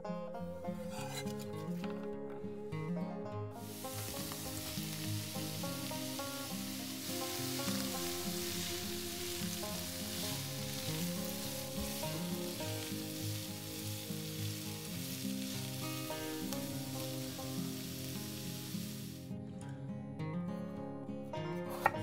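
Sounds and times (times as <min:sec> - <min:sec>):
light background music: 0:00.0 - 0:22.0
vegetables sizzling in a pan: 0:03.6 - 0:19.3.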